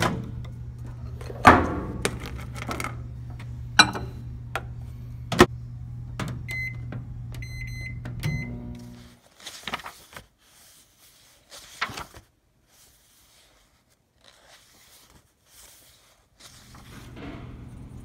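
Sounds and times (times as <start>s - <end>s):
steady low hum: 0.0s - 9.2s.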